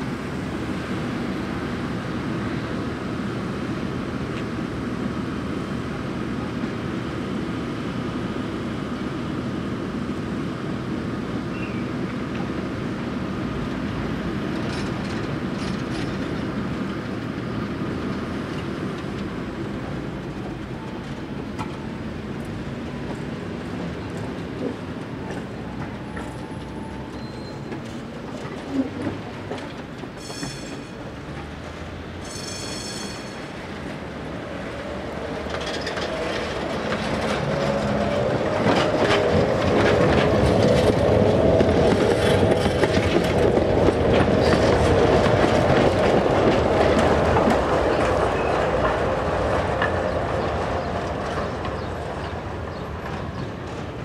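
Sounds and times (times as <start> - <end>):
tram whine: 0.0 - 54.0
tram wheels clattering: 11.6 - 54.0.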